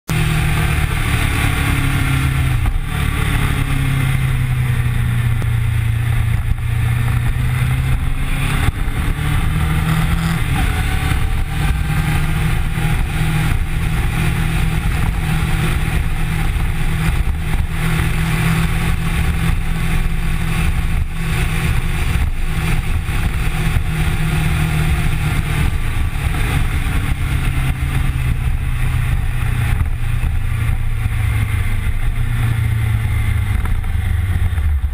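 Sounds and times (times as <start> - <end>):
motorcycle engine running: 0.1 - 34.9
wind rushing over camera: 0.2 - 34.9.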